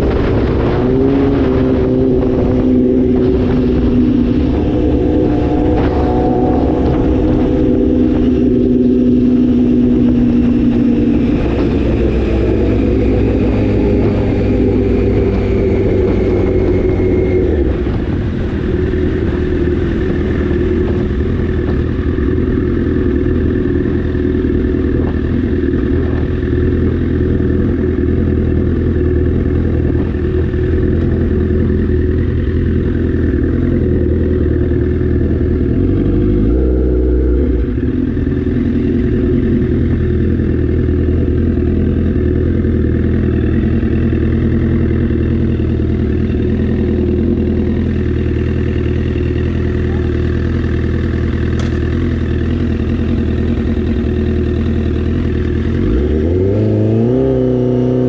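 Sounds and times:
motorcycle engine running: 0.0 - 58.0
road noise rumble: 0.0 - 58.0.

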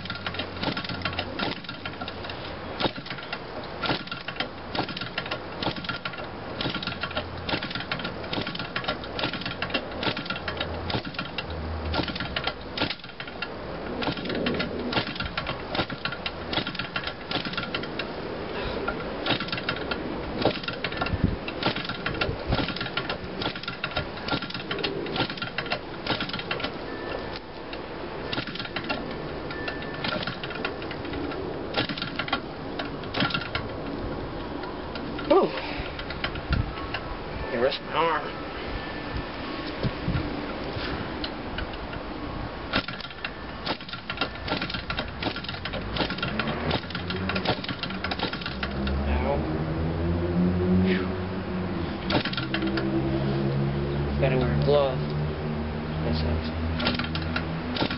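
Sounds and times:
model engine cranked by hand: 0.0 - 18.1, 18.8 - 27.4, 28.3 - 33.7, 42.7 - 49.0, 52.1 - 52.9, 56.8 - 57.9.

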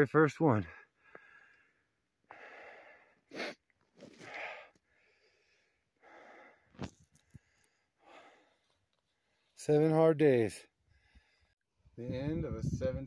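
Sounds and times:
man breathing heavily: 0.7 - 9.6, 10.8 - 11.6.

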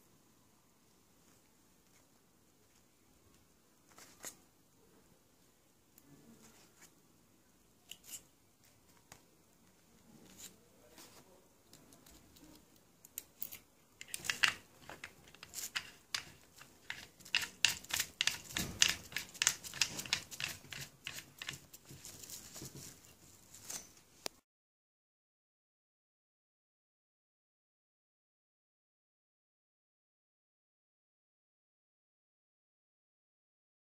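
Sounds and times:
small metal parts clicking: 12.0 - 21.7.

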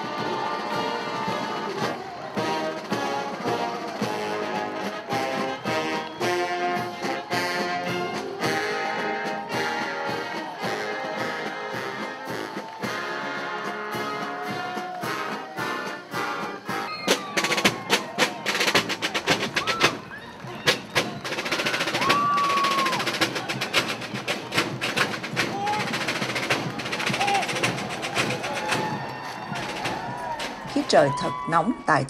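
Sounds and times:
brass band playing a march: 0.0 - 31.1
marching drum cadence: 0.0 - 31.5.

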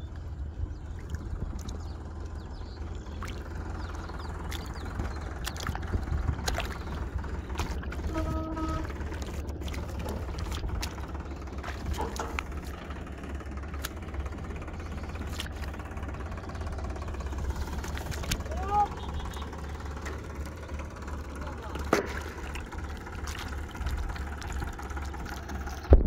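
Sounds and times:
low rumble: 0.0 - 26.0
rustling in wet grass: 1.0 - 25.9
horn-like toot: 8.1 - 8.9.

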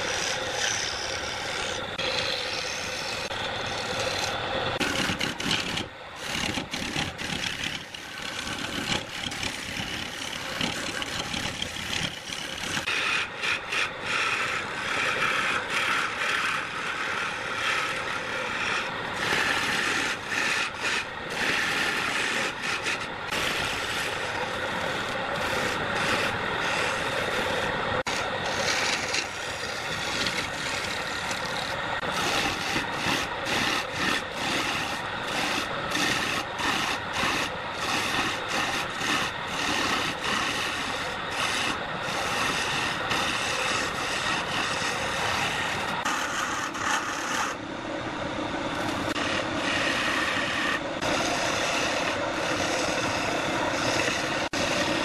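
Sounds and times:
wood lathe chisel scraping cut: 0.0 - 47.7, 48.4 - 55.0.

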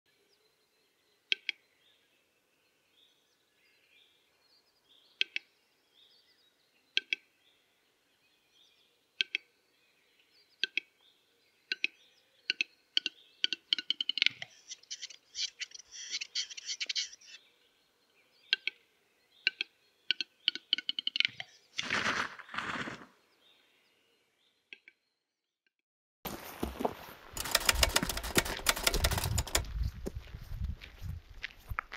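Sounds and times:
bird sharp clicks: 1.3 - 1.6, 5.2 - 5.5, 7.0 - 7.2, 9.2 - 9.5, 10.6 - 10.9, 11.7 - 17.0
bird hoarse scraping: 21.8 - 23.2.

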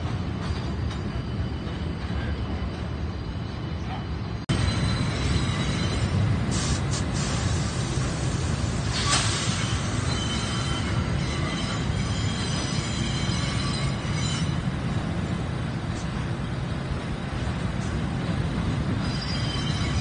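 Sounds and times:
subway train rumbling: 0.0 - 20.0
high wheel squeal: 4.6 - 6.2, 8.8 - 14.6, 19.0 - 20.0
brief hiss: 8.9 - 9.7.

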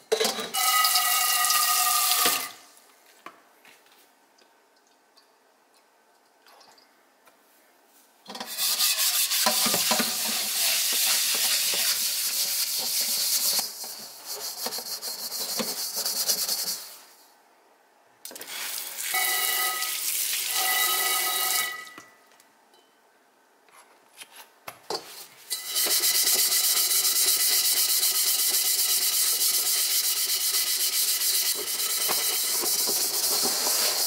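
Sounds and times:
wok ringing tones: 0.5 - 2.6, 19.1 - 22.1, 25.5 - 25.9
steel scrubber rasping on wok: 8.4 - 17.1, 25.5 - 34.0
running water pouring onto wok: 18.4 - 20.8.

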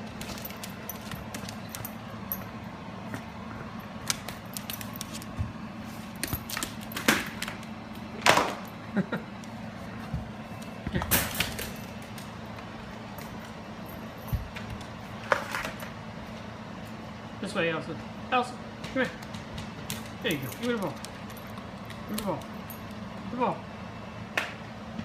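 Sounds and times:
dog claws clicking: 4.0 - 5.3, 19.2 - 23.0.

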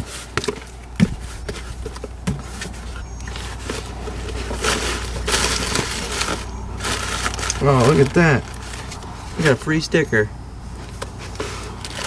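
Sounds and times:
cardboard and packing rustling: 0.0 - 9.7, 10.7 - 12.0
low background rumble: 0.7 - 12.0.

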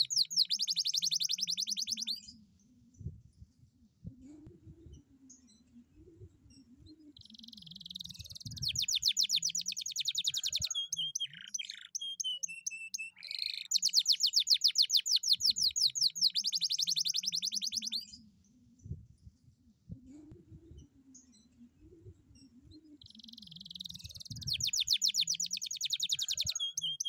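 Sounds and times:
canary singing trills: 0.0 - 2.4, 7.1 - 18.2, 22.4 - 27.0.

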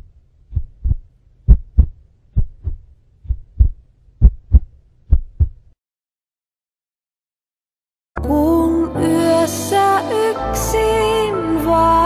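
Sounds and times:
faint low hum: 0.0 - 5.8
heartbeat double thuds: 0.5 - 5.7.

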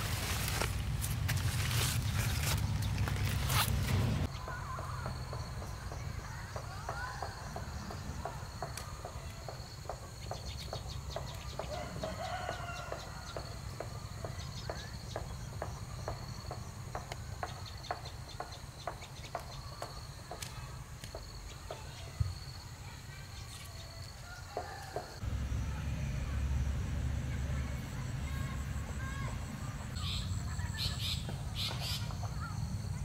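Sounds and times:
insects droning: 0.0 - 33.0
low steady rumble: 25.2 - 30.0.

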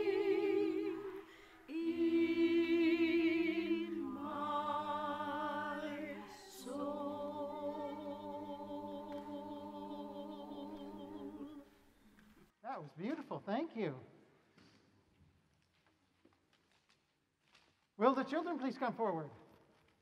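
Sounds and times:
voices singing held notes: 0.0 - 11.9
singers breathing: 1.1 - 1.7.

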